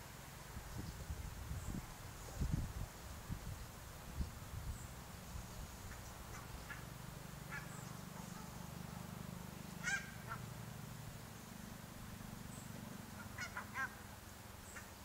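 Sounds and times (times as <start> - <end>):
geese honking: 6.0 - 9.1, 9.7 - 10.6, 13.1 - 14.1.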